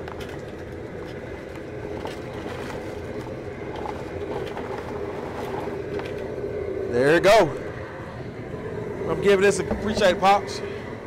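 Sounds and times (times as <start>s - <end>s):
gas burner roaring: 0.0s - 11.0s
water boiling: 0.0s - 11.0s.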